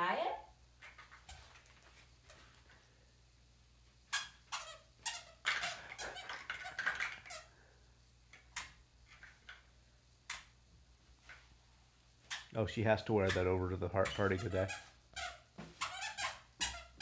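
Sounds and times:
squeaky shoes squeaking: 0:12.3 - 0:12.6, 0:13.2 - 0:17.0.

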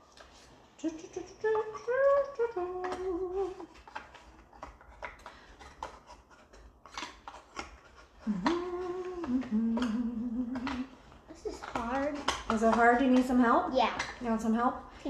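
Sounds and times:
person humming: 0:00.8 - 0:03.7, 0:08.2 - 0:11.0
cardboard pieces clicking: 0:02.1 - 0:13.3.

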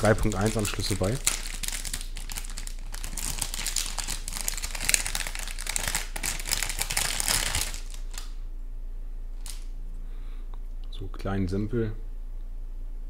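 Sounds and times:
plastic bags crinkling: 0:00.0 - 0:08.4.

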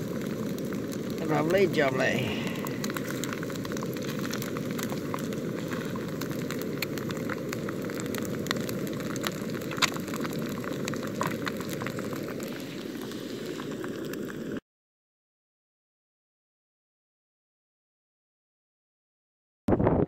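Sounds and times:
bacon and egg sizzling in a pan: 0:00.0 - 0:14.6
hot fat crackling and popping: 0:00.0 - 0:14.6.

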